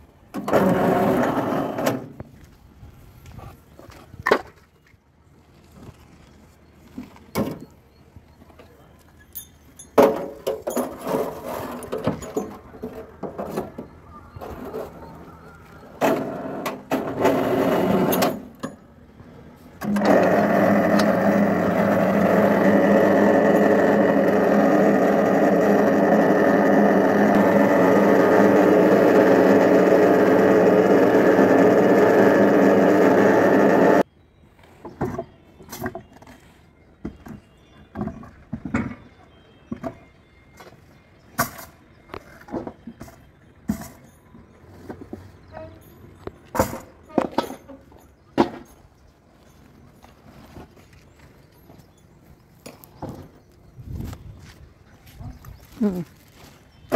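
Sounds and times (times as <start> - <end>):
chains and wheelbarrow clanking: 8.6 - 18.9, 41.4 - 53.4
hoist motor whirring: 19.8 - 34.0.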